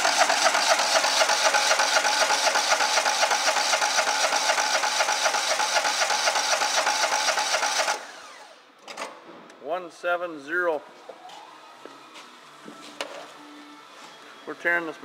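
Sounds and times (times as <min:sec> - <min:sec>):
engine cranked by electric starter: 0:00.0 - 0:09.0.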